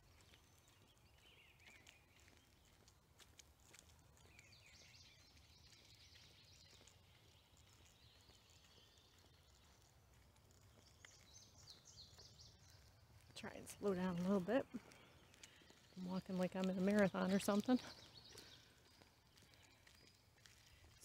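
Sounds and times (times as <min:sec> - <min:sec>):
faint birds singing: 0:00.0 - 0:21.0
footsteps on paved path: 0:00.0 - 0:21.0.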